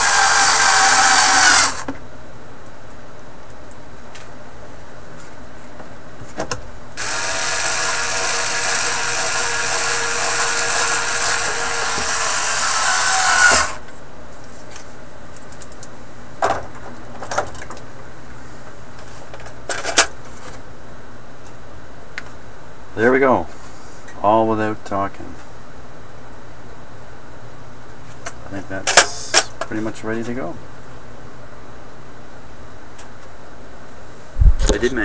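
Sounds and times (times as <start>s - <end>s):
small electric power tool: 0.0s - 1.9s, 7.0s - 13.8s.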